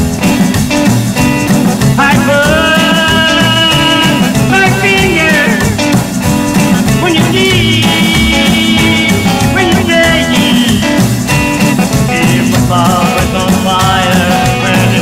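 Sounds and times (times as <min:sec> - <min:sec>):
rock and roll band music: 0:00.0 - 0:15.0
person singing: 0:02.0 - 0:06.0, 0:06.6 - 0:11.2, 0:12.0 - 0:15.0.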